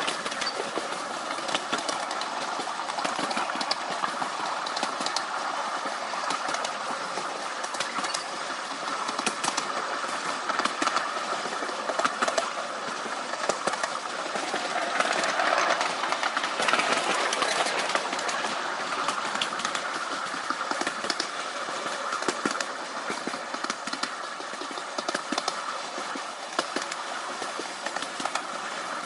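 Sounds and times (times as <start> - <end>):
wheels clicking over rail joints: 0.0 - 29.0.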